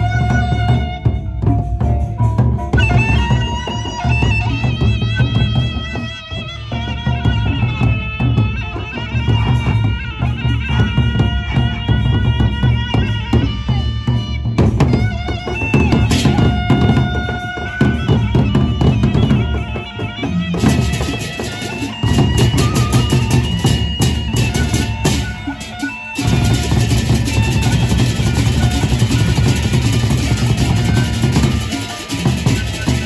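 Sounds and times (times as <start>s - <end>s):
barrel drums beaten: 0.0s - 33.0s
hand cymbals clashing: 14.2s - 33.0s
held melodic tones: 14.8s - 33.0s.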